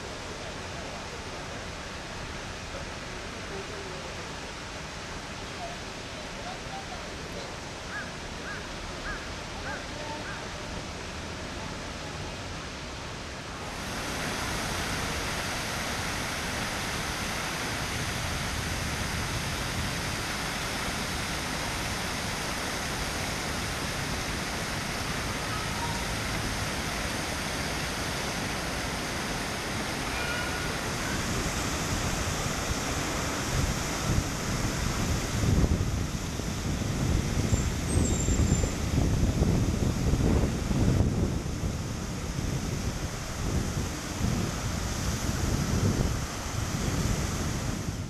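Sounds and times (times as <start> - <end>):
fountain water splashing: 0.0 - 48.0
wind buffeting microphone: 30.8 - 48.0.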